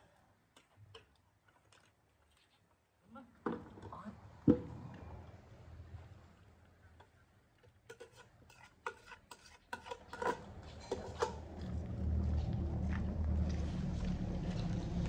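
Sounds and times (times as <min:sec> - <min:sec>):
dogs eating from a plate: 0:06.7 - 0:14.9.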